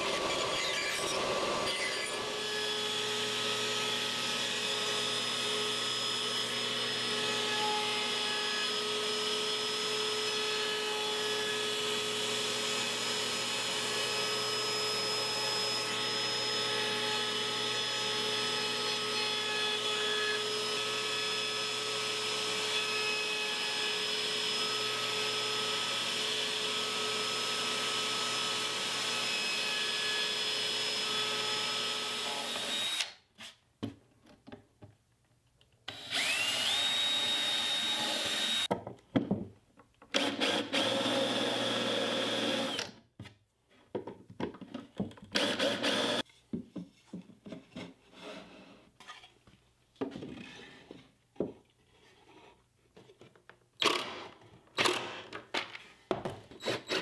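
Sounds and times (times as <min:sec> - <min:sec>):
cordless drill whining: 0:20.7 - 0:33.2, 0:35.9 - 0:38.7, 0:40.1 - 0:43.0, 0:45.3 - 0:46.2.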